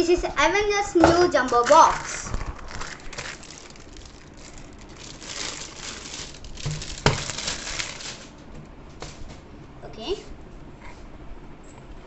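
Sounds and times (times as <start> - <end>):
plastic packaging crinkling: 1.5 - 9.3.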